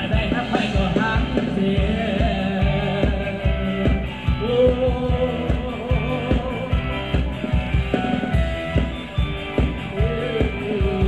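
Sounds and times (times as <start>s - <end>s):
person singing: 0.0s - 7.3s, 9.8s - 11.0s
driving drum beat: 0.0s - 11.0s.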